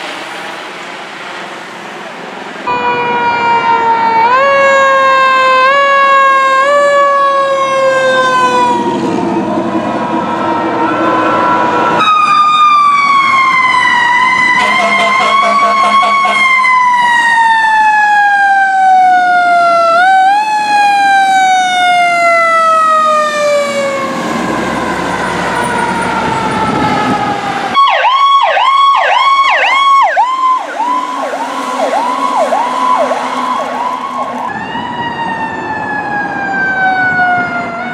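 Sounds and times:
fire truck siren wailing: 2.6s - 37.9s
siren fast yelp: 12.0s - 37.9s.

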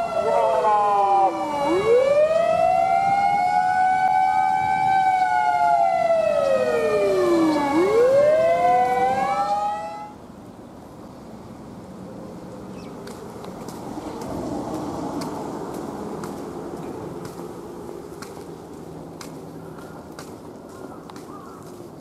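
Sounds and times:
siren wailing: 0.0s - 10.2s
faint outdoor background: 0.0s - 22.0s.

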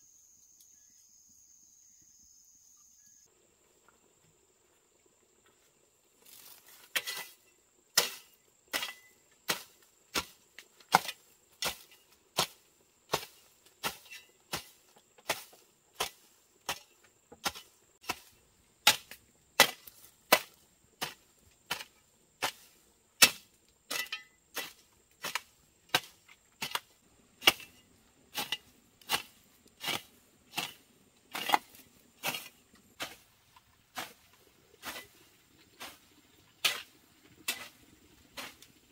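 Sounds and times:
hand tool strikes: 23.2s - 24.7s, 25.3s - 27.8s, 28.4s - 33.2s.

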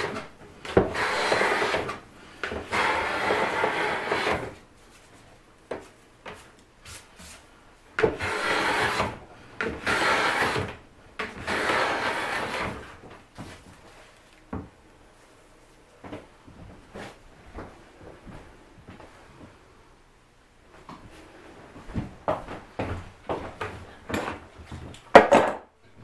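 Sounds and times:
hand plane shaving wood: 0.0s - 4.6s, 8.1s - 12.9s.

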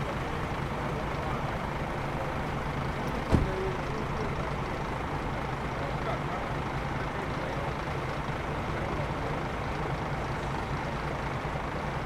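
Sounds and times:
diesel engine idling: 0.0s - 12.0s
thump: 3.1s - 3.7s.

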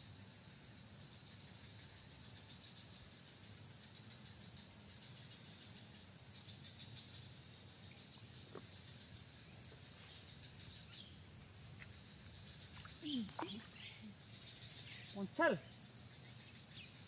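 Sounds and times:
cricket-like chirring: 0.0s - 17.0s
high-pitched insect drone: 0.0s - 17.0s
faint bird chirp: 3.9s - 17.0s.

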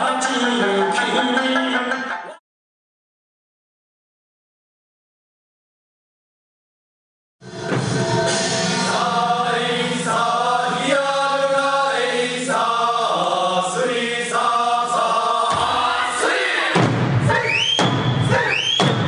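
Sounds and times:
voices chanting a folk melody: 0.0s - 2.4s, 7.6s - 19.0s
drum strikes: 7.4s - 10.2s, 15.5s - 16.0s, 16.7s - 19.0s.

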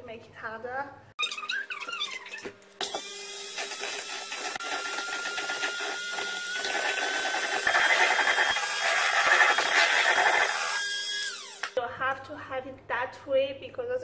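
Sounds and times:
electric hand whisk running: 2.9s - 11.8s
beaters whisking in metal bowl: 3.6s - 10.8s.

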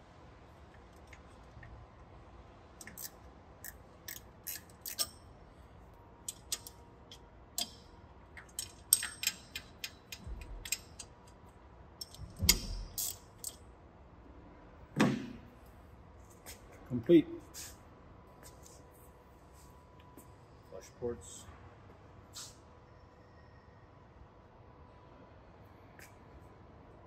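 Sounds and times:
ratchet wrench clicking: 2.8s - 5.2s, 6.2s - 7.8s, 8.4s - 11.4s, 12.0s - 13.6s.

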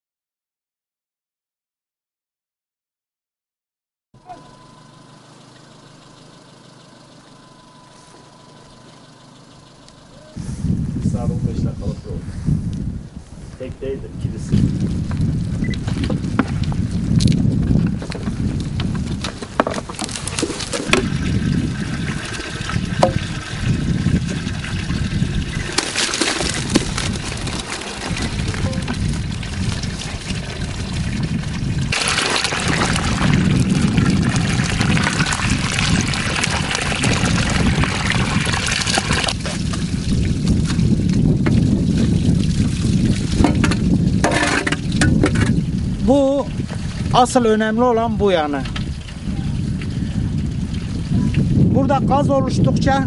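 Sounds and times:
engine idling: 4.2s - 11.5s
faint high whine: 4.2s - 11.6s
water running from a hose: 14.5s - 52.1s
wheelbarrow clicks and knocks: 19.2s - 21.1s, 43.4s - 45.6s.

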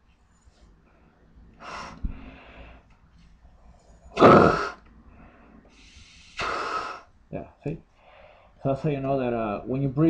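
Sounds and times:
breath blown into respirator: 4.2s - 4.8s, 5.7s - 7.1s.

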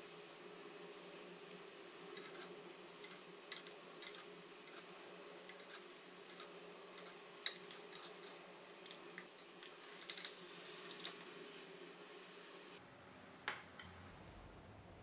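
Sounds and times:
egg frying in hot oil: 0.2s - 12.8s
metal spoon basting oil: 2.1s - 11.2s.

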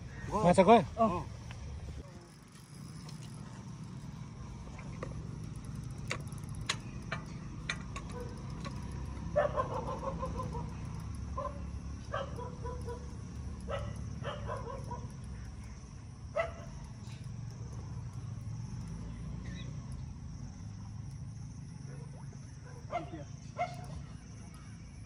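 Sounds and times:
dog barking: 9.4s - 10.7s, 11.4s - 13.1s, 13.7s - 15.1s, 16.4s - 16.8s, 21.9s - 23.9s.

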